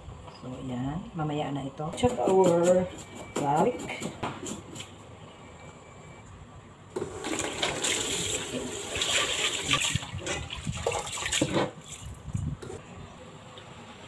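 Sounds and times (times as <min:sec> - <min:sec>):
water sloshing and splashing: 0:07.2 - 0:12.2.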